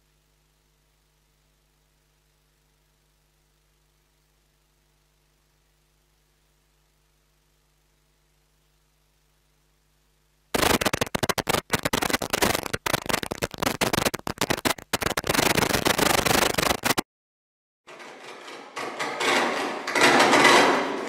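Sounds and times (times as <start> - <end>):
loud ragged crackling noise: 10.5 - 17.1.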